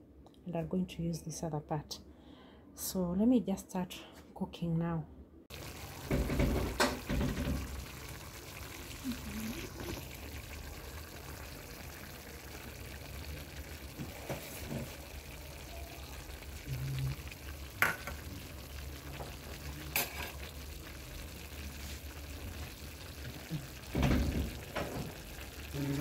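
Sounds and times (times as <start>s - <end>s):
meat cooking in metal pan: 5.5s - 26.0s.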